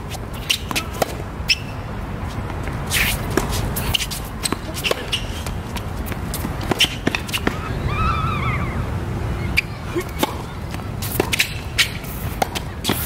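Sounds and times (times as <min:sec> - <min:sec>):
shoe squeak: 0:00.1 - 0:07.7, 0:09.4 - 0:13.0
tennis ball bouncing: 0:00.3 - 0:01.8, 0:02.4 - 0:07.7, 0:09.6 - 0:13.0
racquet striking tennis ball: 0:00.4 - 0:01.6, 0:03.0 - 0:07.6, 0:10.0 - 0:13.0
low rumble: 0:07.5 - 0:09.6.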